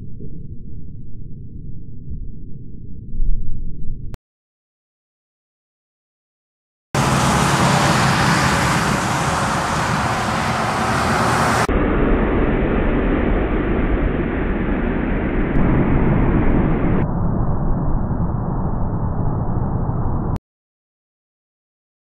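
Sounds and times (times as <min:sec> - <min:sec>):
highway traffic noise: 0:07.0 - 0:11.7
truck passing: 0:07.0 - 0:11.7.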